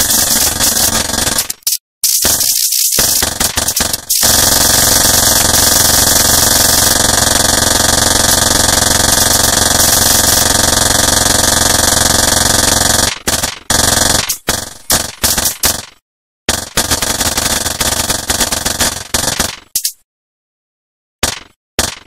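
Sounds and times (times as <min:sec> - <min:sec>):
buzzing noise drone: 0:03.0 - 0:07.0, 0:08.1 - 0:10.6.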